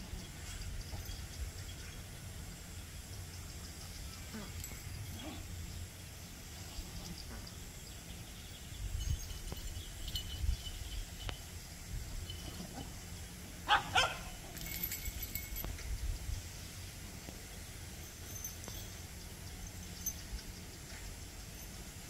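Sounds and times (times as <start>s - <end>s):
dog barking: 13.7s - 14.4s.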